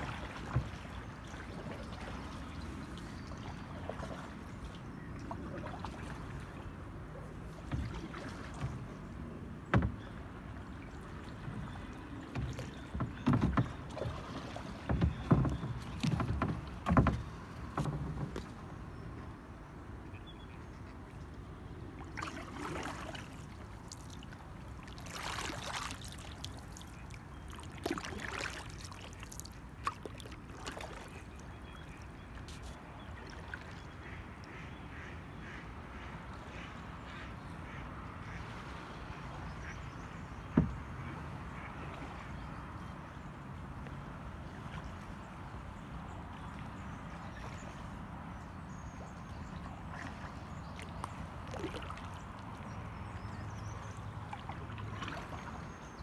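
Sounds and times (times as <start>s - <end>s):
paddle strokes swishing water: 0.0s - 56.0s
paddle knocking on canoe hull: 9.7s - 10.2s, 12.2s - 18.6s, 40.5s - 41.0s.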